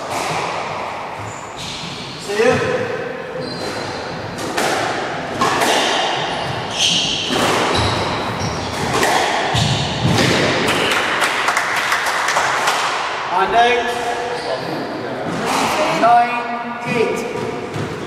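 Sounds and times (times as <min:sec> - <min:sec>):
sneakers squeaking on wooden floor: 0:00.4 - 0:04.6, 0:05.3 - 0:10.2, 0:13.9 - 0:15.8
squash ball thuds: 0:03.8 - 0:10.9.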